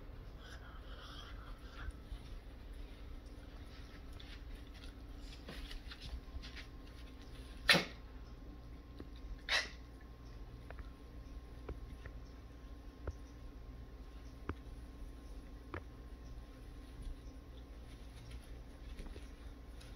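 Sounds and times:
faint scuffling and paw taps: 1.8s - 7.6s, 14.4s - 19.9s.

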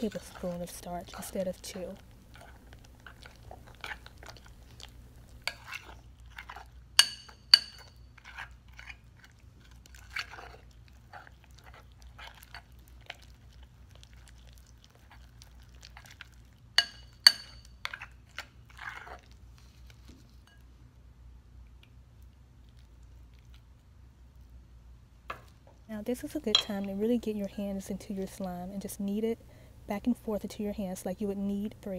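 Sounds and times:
spoon squelching slime: 0.0s - 20.7s, 26.0s - 29.3s
spoon clinking on bowl: 7.0s - 8.0s, 16.8s - 17.7s, 26.5s - 26.9s.

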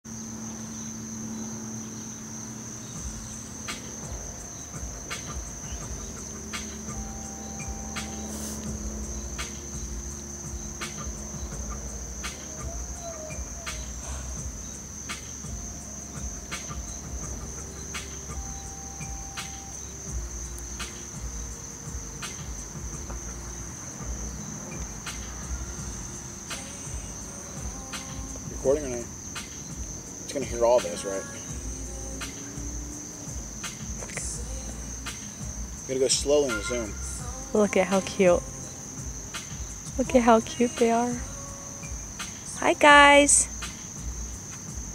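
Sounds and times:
insects trilling: 0.0s - 44.9s
low rumble: 2.8s - 30.6s
sharp ticks: 3.0s - 12.8s.

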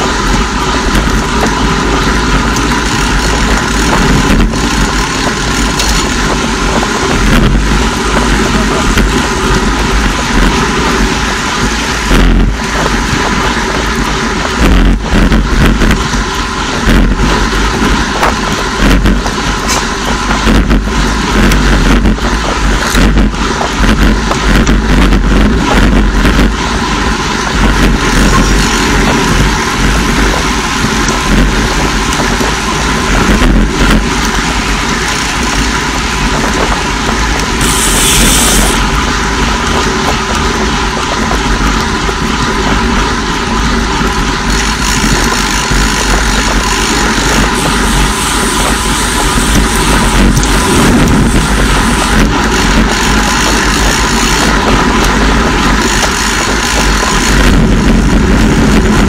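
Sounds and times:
bike tyres on road: 0.0s - 59.0s
wind buffeting microphone: 0.0s - 59.0s
brief high hiss: 37.6s - 38.8s.

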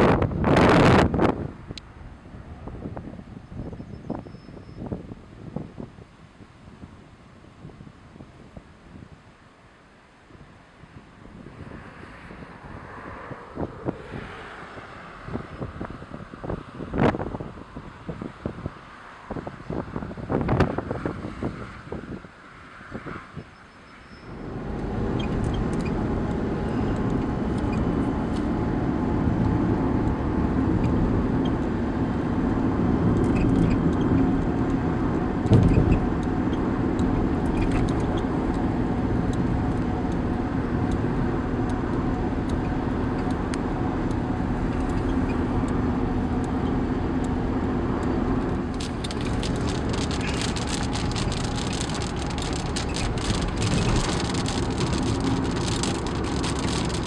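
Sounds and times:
rain pattering: 48.0s - 57.0s.

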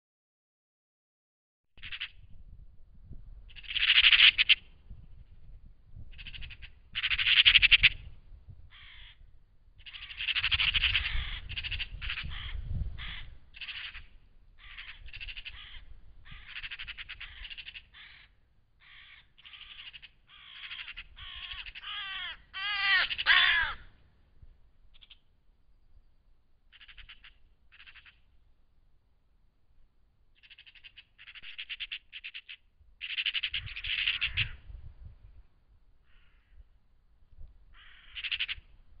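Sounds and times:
magpies rattling chatter: 1.8s - 2.1s, 3.6s - 4.6s, 6.1s - 8.1s, 9.8s - 18.3s, 18.9s - 23.8s, 26.7s - 28.2s, 30.4s - 34.6s, 37.8s - 38.6s.

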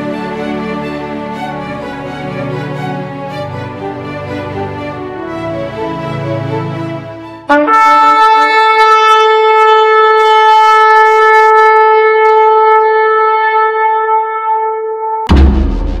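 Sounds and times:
shofar blast: 7.5s - 15.2s.

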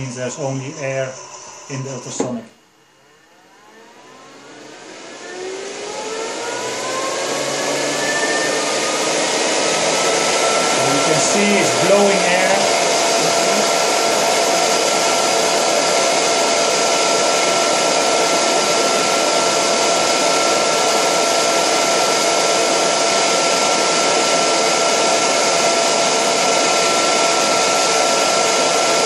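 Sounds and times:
machine blowing air with whine: 0.0s - 29.0s.

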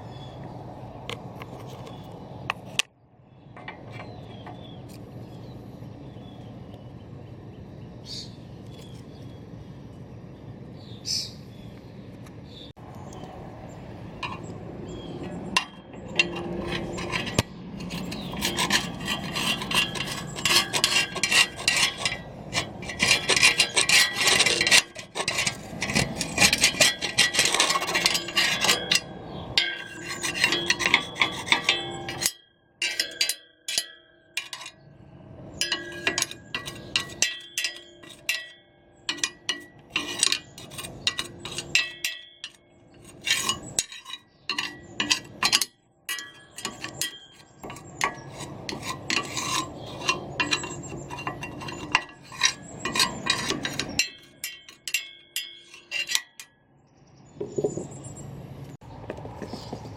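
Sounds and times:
scraping and rubbing metal: 3.5s - 5.0s, 14.0s - 56.5s.

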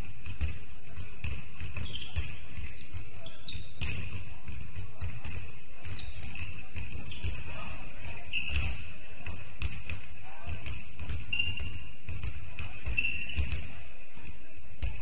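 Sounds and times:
basketball bouncing on floor: 0.1s - 13.7s.

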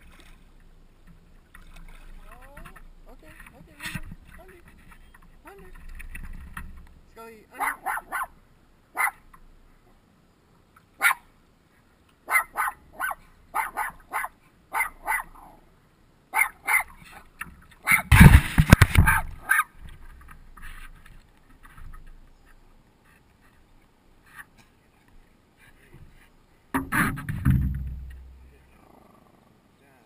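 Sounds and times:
small dog yipping: 7.6s - 8.3s, 9.0s - 9.2s, 11.0s - 11.2s, 12.3s - 15.3s, 16.4s - 16.9s, 17.8s - 18.1s, 19.0s - 19.7s.

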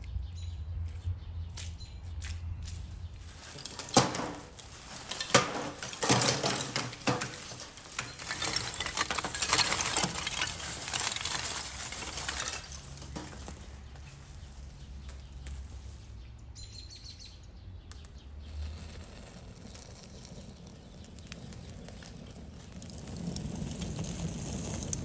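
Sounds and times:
charcoal clattering into metal basket: 3.3s - 14.4s.

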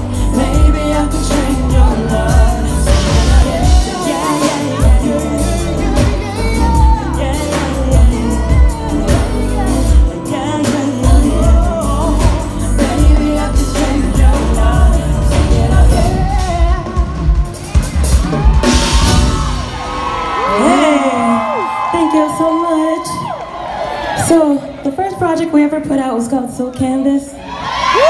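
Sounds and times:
women singing r and b: 0.0s - 17.5s
band with drums and bass: 0.0s - 23.4s.

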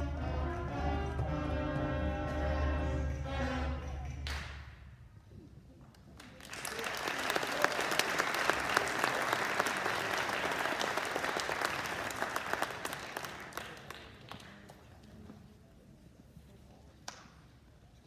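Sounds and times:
audience applauding: 6.2s - 14.7s.

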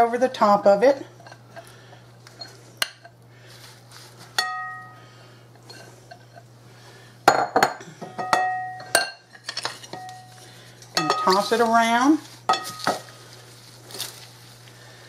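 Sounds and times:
ringing clink of bowl: 4.4s - 5.0s, 8.1s - 9.2s
utensils clattering against bowl: 7.3s - 13.1s.

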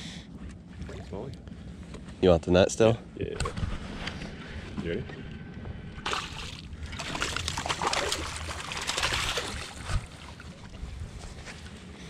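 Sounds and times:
water sloshing: 5.8s - 11.8s
fish splashing and thrashing: 6.0s - 11.8s.

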